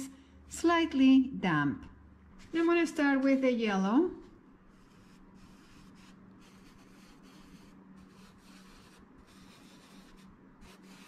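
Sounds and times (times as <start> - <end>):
sponge dabbing on canvas: 4.7 - 11.0.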